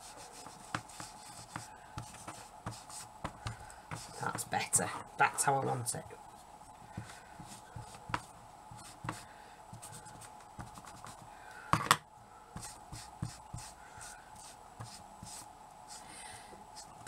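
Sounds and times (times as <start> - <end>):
scratching and rubbing on wood: 0.0 - 5.6
faint steady hum: 0.0 - 17.0.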